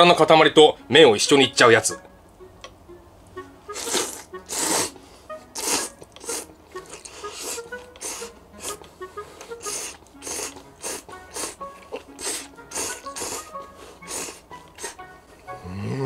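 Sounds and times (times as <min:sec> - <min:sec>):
faint background music: 0:00.0 - 0:16.0
person slurping noodles: 0:03.7 - 0:16.0.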